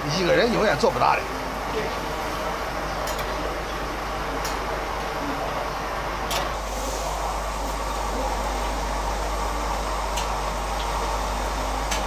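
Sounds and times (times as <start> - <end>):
gas burners roaring: 0.0 - 12.0.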